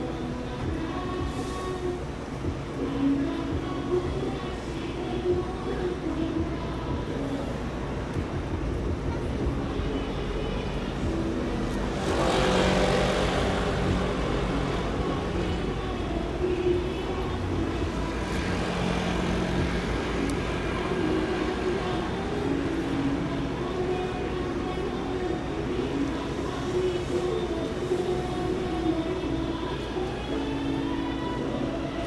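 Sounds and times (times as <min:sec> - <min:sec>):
traffic hum: 0:00.0 - 0:32.0
vehicle passing: 0:11.5 - 0:16.0, 0:17.2 - 0:23.8.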